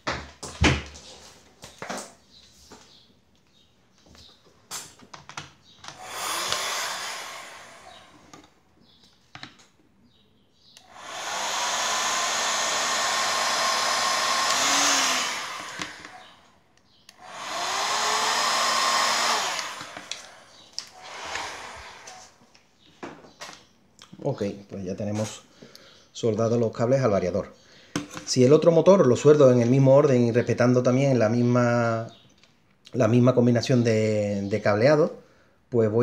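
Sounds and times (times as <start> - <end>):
hot air gun hissing: 6.0 - 8.3, 10.8 - 16.4, 17.2 - 22.4.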